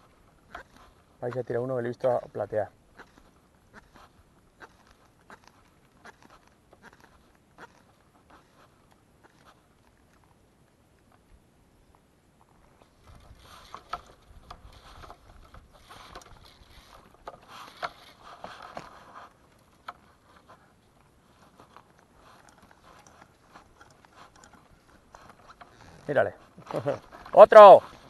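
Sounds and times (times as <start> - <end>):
water splashing and sloshing: 12.7 - 28.0
small clicks and knocks: 12.8 - 28.0.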